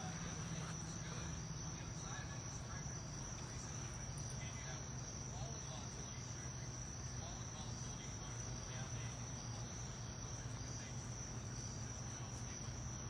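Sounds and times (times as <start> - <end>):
insects trilling: 0.0 - 13.0
low steady hum: 0.0 - 13.0.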